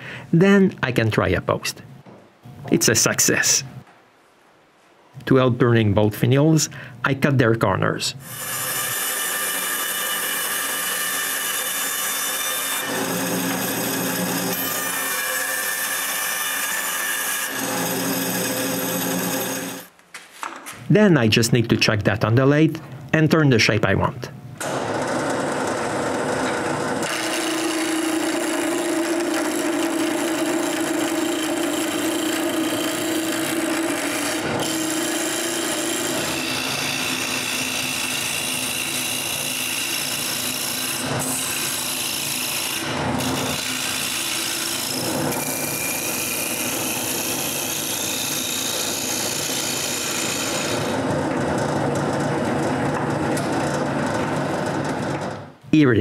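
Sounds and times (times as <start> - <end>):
wood lathe humming: 8.3 - 19.9, 24.6 - 55.4
turning tool scraping wood: 27.0 - 51.5.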